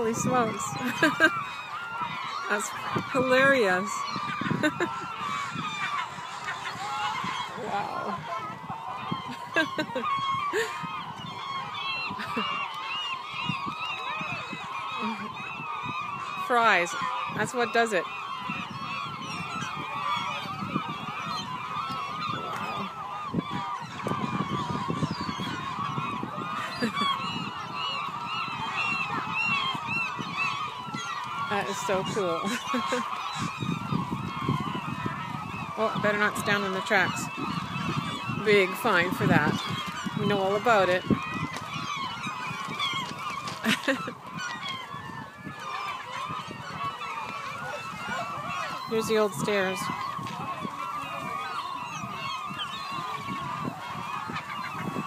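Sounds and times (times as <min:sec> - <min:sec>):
seagulls squawking: 0:00.0 - 0:55.0.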